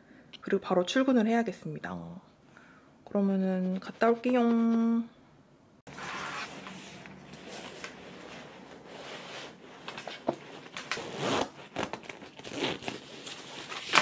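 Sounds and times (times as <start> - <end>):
zipper being pulled: 5.9 - 6.7, 8.2 - 14.0
fabric rustling: 5.9 - 14.0.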